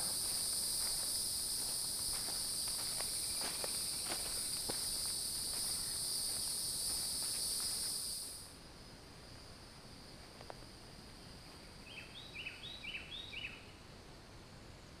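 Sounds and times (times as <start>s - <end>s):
footsteps on dry leaves: 0.0s - 8.1s
insect chorus droning: 0.0s - 15.0s.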